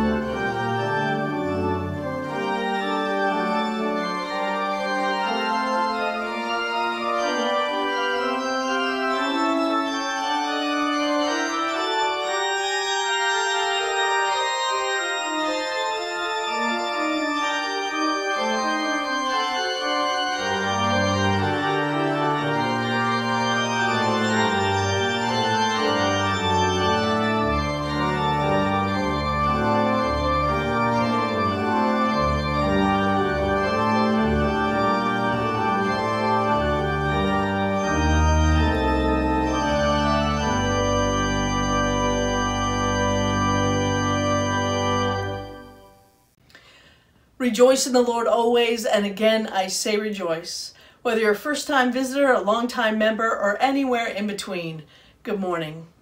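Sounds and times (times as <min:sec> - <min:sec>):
church organ chords: 0:00.0 - 0:46.3.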